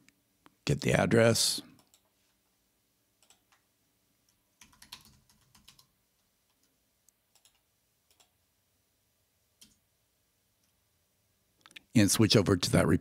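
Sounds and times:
faint keyboard typing: 1.8 - 2.3, 3.2 - 8.4, 9.6 - 9.8.

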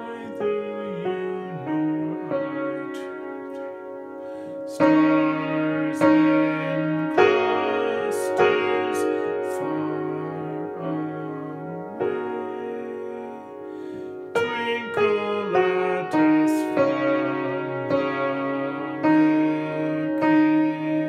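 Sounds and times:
piano chords ringing: 0.0 - 21.0.

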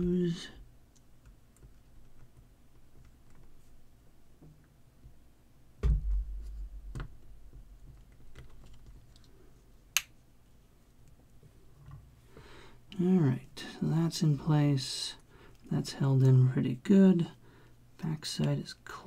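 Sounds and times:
heavy thump: 5.8 - 7.1
knock: 5.8 - 7.1.

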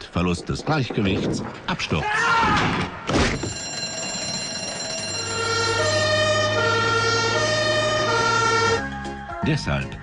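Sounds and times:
two-tone emergency siren: 3.4 - 9.0.

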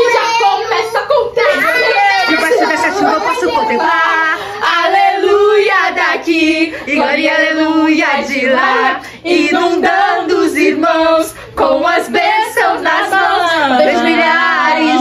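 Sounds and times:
women singing: 1.6 - 15.0.

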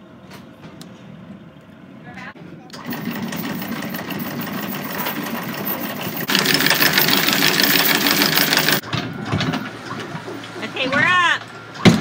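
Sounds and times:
anchor windlass hauling chain: 2.8 - 8.8.

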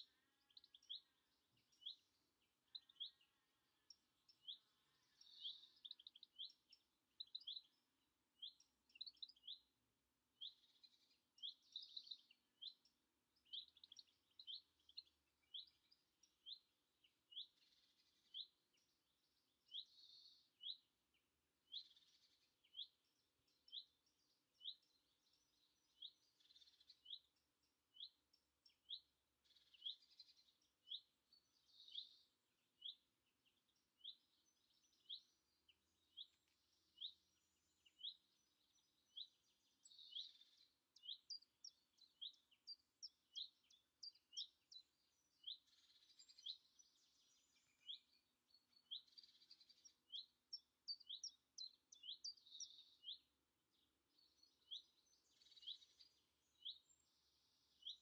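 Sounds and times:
faint birdsong: 0.0 - 58.0.

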